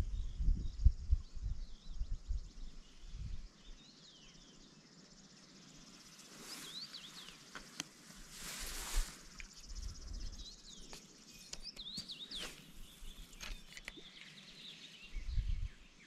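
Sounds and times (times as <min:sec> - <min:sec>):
wind rumble on microphone: 0:00.0 - 0:03.8, 0:08.6 - 0:10.8, 0:15.1 - 0:16.0
small birds chirping: 0:00.0 - 0:16.0
rush of hiss: 0:08.3 - 0:09.4.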